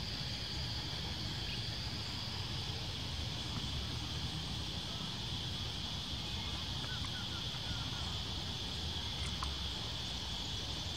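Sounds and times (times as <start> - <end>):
high-pitched insect chorus: 0.0 - 10.9.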